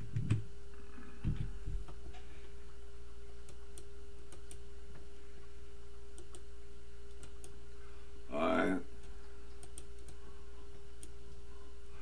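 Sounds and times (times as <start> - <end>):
steady electrical hum: 0.0 - 12.0
keyboard and mouse clicks: 9.5 - 10.2.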